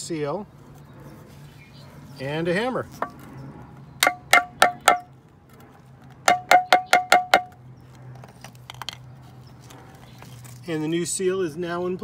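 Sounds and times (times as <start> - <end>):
hammer tapping plastic pipe: 4.0 - 5.1, 6.3 - 7.6.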